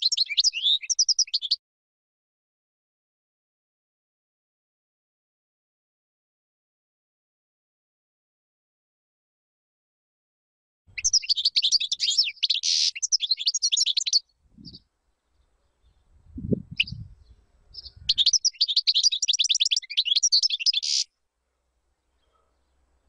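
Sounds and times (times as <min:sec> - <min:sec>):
finch twittering song: 0:00.0 - 0:01.6, 0:10.9 - 0:21.1.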